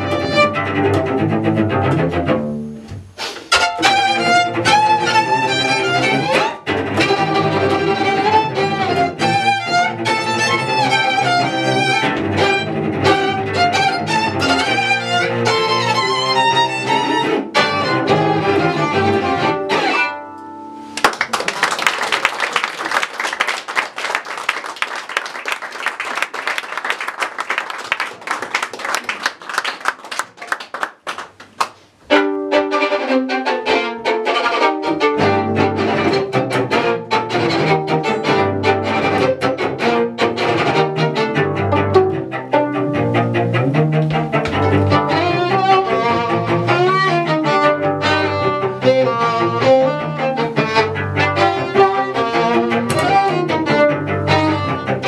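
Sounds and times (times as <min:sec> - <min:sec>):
violin and cello playing: 0:00.0 - 0:20.9, 0:32.0 - 0:55.0
audience applauding: 0:21.0 - 0:31.8.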